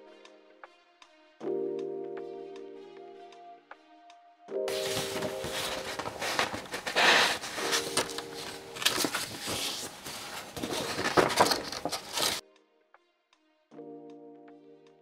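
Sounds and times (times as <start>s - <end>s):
paper sheets rustling: 4.7s - 12.4s.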